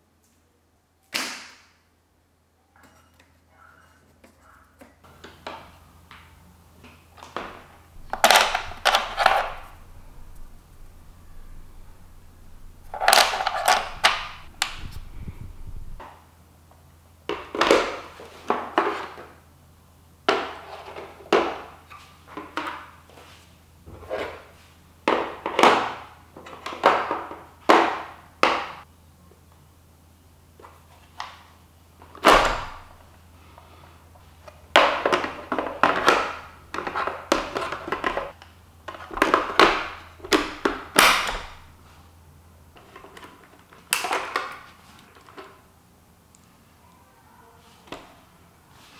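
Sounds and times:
plastic parts clicking and knocking: 0:07.2 - 0:15.0, 0:34.7 - 0:41.7.

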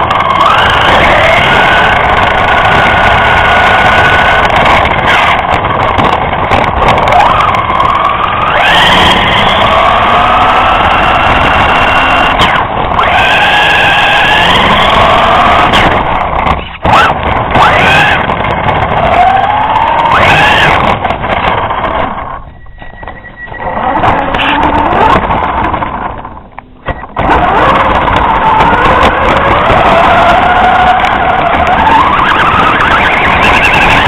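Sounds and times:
rc car engine revving: 0:00.0 - 0:34.0
wheels rolling on road: 0:00.0 - 0:34.0.

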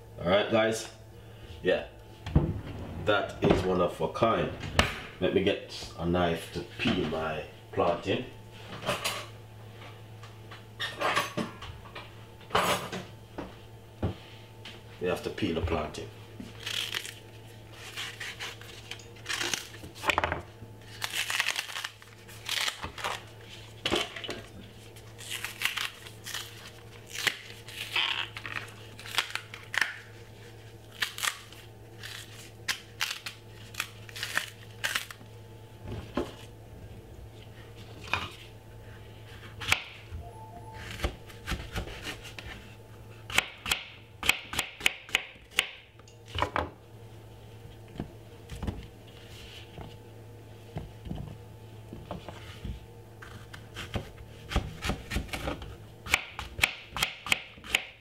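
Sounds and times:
knife peeling plantain skin: 0:16.5 - 0:19.9, 0:25.0 - 0:30.0.

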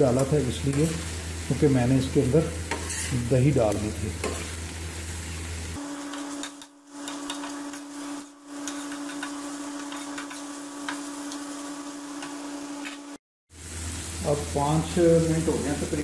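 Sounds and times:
metal spatula scraping iron pan: 0:02.7 - 0:03.2.

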